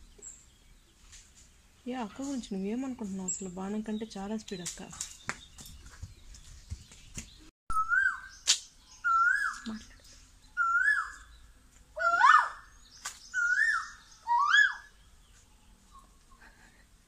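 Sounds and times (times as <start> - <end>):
koel bird calling: 7.7 - 9.9, 10.6 - 11.3, 12.0 - 12.7, 13.3 - 15.0.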